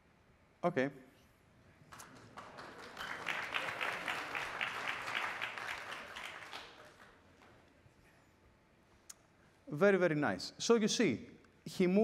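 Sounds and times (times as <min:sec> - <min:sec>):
audience applauding: 0:01.9 - 0:07.6.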